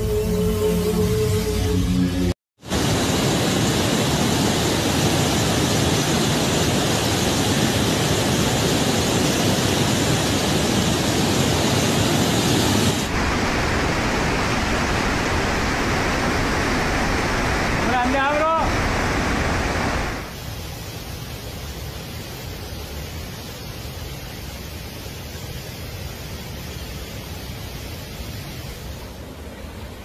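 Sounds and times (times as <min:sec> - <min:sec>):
floodwater rushing: 0:02.6 - 0:24.4.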